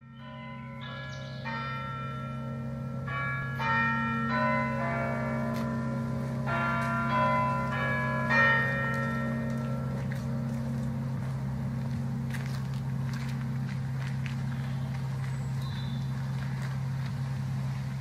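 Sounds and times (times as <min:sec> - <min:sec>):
bells ringing: 0:00.0 - 0:13.6
steady low hum: 0:01.7 - 0:18.0.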